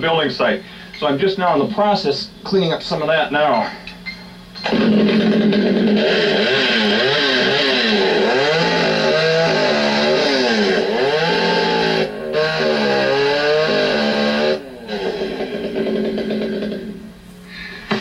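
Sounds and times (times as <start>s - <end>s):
chainsaw cutting a log: 4.6s - 17.1s.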